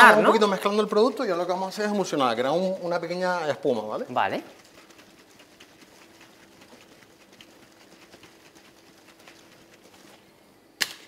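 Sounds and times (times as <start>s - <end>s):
cocktail shaker sloshing and knocking: 2.4s - 10.3s
shaker tin cracking open: 4.5s - 10.2s.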